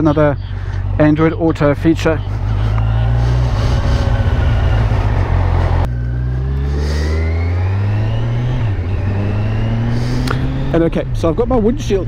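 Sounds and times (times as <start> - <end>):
motorcycle engine accelerating: 2.1 - 12.0.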